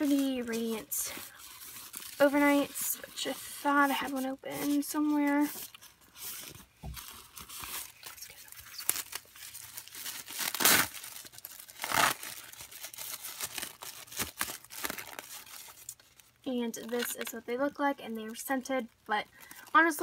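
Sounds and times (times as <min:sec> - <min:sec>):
plastic wrapper crinkling: 0:00.0 - 0:20.0
wrapper tearing rips: 0:07.2 - 0:17.3.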